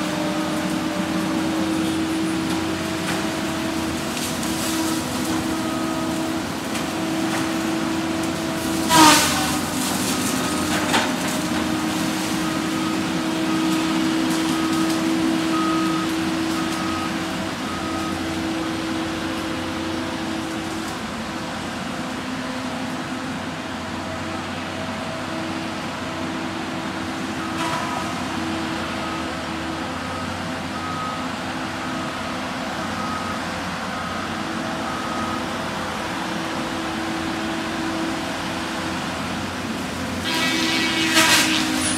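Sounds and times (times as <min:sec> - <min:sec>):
diesel engine running: 0:00.0 - 0:41.9
loud screech falling in pitch: 0:40.2 - 0:41.9.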